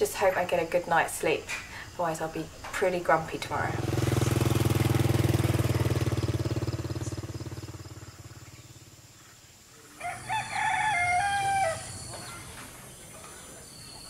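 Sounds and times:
small motorcycle engine running: 0:03.4 - 0:09.3
rooster crowing: 0:10.0 - 0:12.1.

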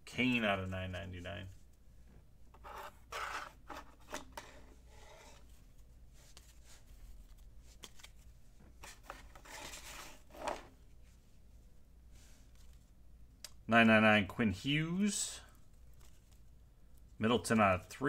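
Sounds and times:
cards sliding swishes: 0:02.6 - 0:10.7.

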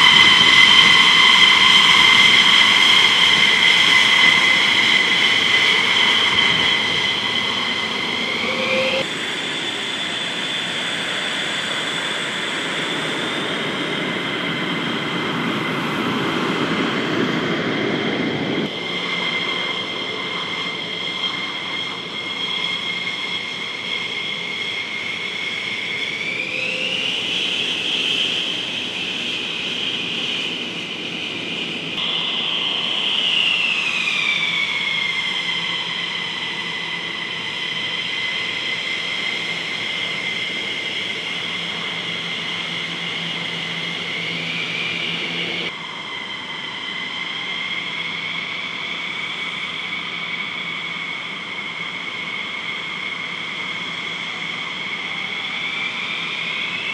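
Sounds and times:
jet engines whining: 0:00.0 - 0:56.9
rushing noise: 0:04.3 - 0:09.5.

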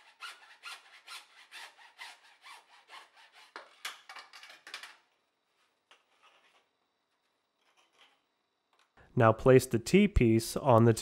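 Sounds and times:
hacksaw cutting plastic tube: 0:00.0 - 0:04.9.

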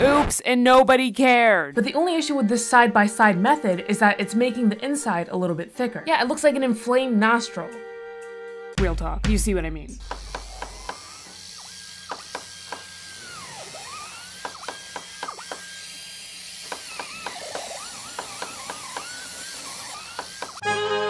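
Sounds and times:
squeaky glides: 0:16.9 - 0:20.6.

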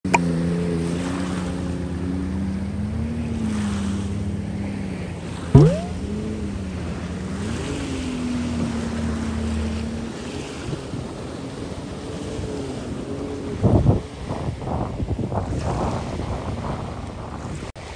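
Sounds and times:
watercraft engine humming: 0:00.0 - 0:15.4
water splashing: 0:00.1 - 0:14.3
wind on microphone: 0:02.5 - 0:17.9
sound sweeping up in pitch: 0:05.6 - 0:06.3.

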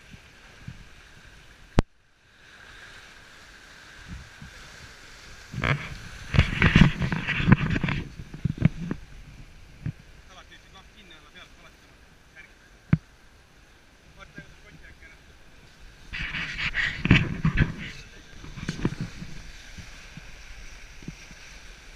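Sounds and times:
wind and water rushing: 0:00.0 - 0:21.9
knocks and splashes: 0:05.4 - 0:09.0, 0:16.1 - 0:21.6.

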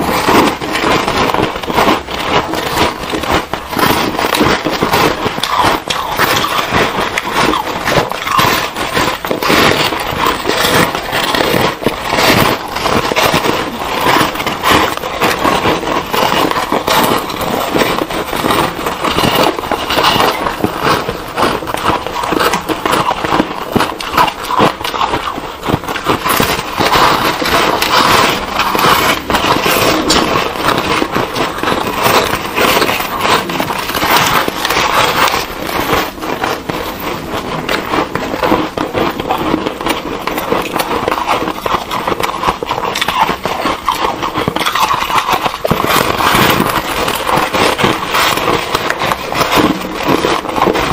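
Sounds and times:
foam ice crunching when chewed: 0:00.0 - 0:50.9.

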